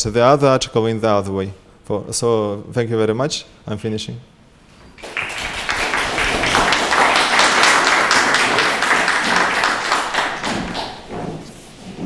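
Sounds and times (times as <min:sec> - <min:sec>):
audience applause: 0:05.0 - 0:11.1.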